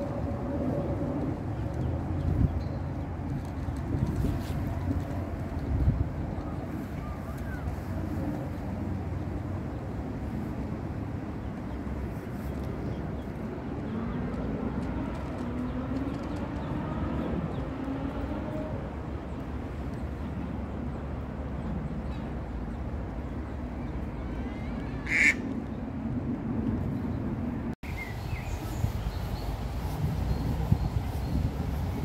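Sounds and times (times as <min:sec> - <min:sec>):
birds calling: 0:22.0 - 0:25.7.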